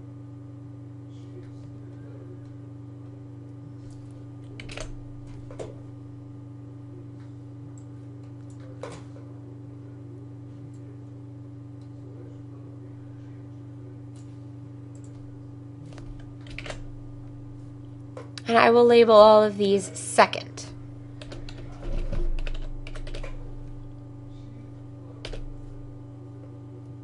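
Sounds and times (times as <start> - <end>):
low electrical hum: 0.0 - 27.0
keyboard and mouse clicks: 4.4 - 4.9, 15.9 - 16.8, 21.2 - 23.4.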